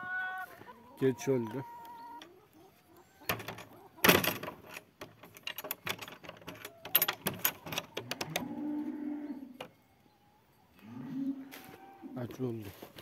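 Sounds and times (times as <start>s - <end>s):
wooden door and latch rattling: 3.3s - 8.5s.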